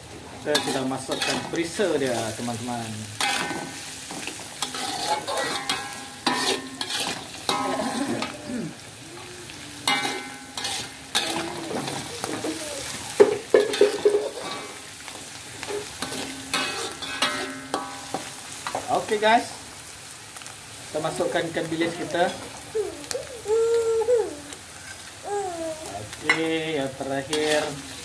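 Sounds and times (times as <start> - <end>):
food sizzling in oil: 0.0 - 28.0
spatula scraping a wok: 0.5 - 8.9, 9.6 - 18.8, 26.3 - 28.0.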